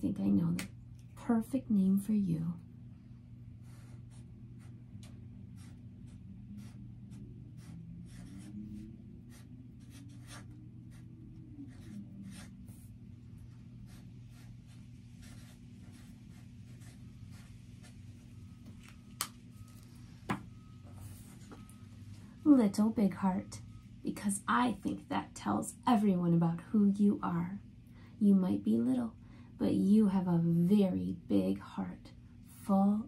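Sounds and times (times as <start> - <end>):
steady low hum: 0.0 - 33.0
marker scratching on paper: 3.6 - 18.0.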